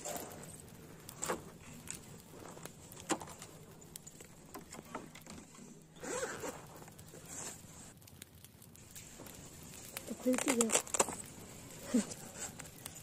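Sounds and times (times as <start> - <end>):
zipper pulled open: 6.0 - 7.6.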